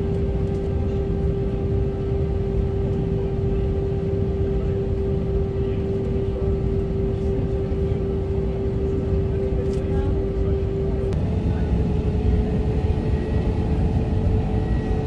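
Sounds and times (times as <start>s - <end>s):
airplane engine rumble: 0.0s - 15.0s
constant hum: 0.0s - 15.0s.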